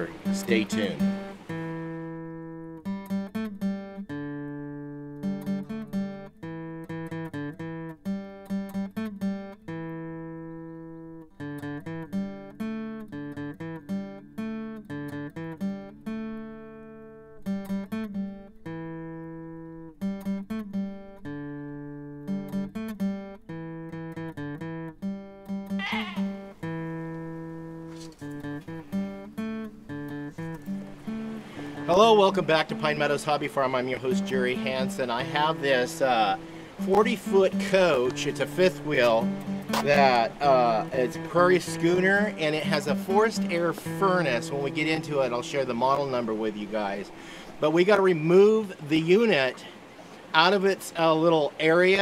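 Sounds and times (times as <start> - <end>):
acoustic guitar music: 0.0 - 52.0.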